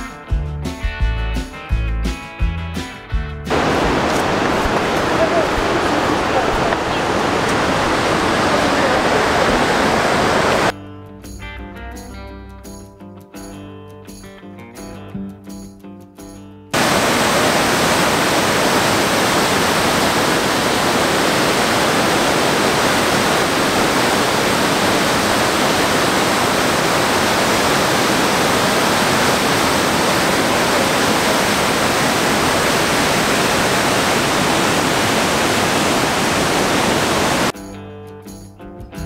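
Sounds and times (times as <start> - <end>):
waterfall pouring: 3.5 - 10.7, 16.8 - 37.5.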